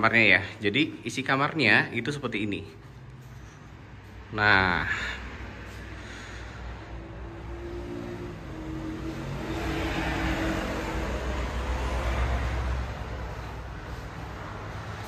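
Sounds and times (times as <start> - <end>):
passing vehicle engine: 2.8 - 15.0.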